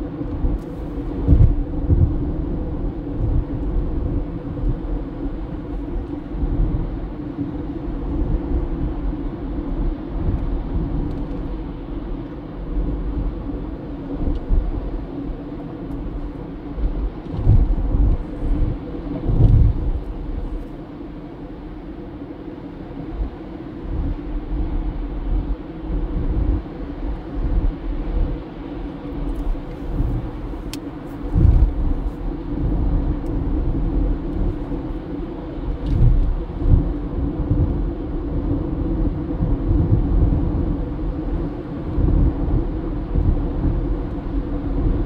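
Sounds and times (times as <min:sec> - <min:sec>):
car road and engine rumble: 0:00.0 - 0:45.0.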